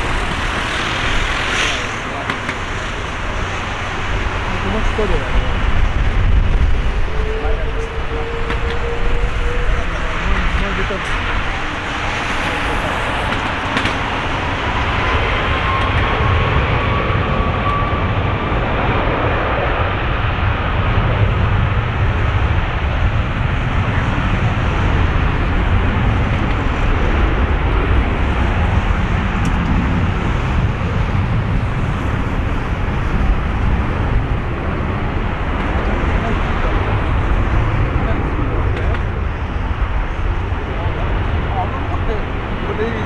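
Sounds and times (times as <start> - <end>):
faint engine whine: 0.0 - 43.0
jet engines rumbling: 0.0 - 43.0.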